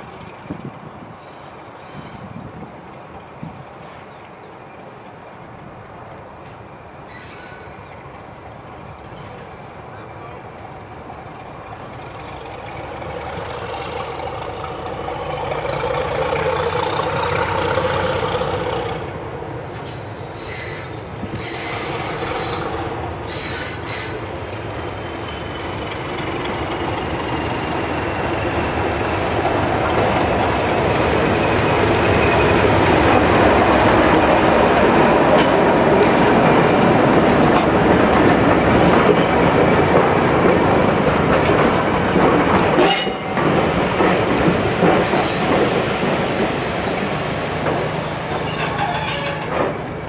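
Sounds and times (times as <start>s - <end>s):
diesel locomotive passing: 0.0s - 50.0s
faint falling squeal: 7.0s - 7.9s, 46.4s - 50.0s.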